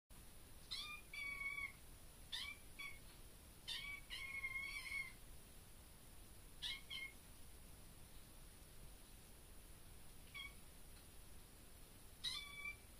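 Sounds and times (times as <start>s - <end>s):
kitten meowing: 0.7s - 3.0s, 3.7s - 5.2s, 6.6s - 7.2s, 10.3s - 10.6s, 12.2s - 12.9s.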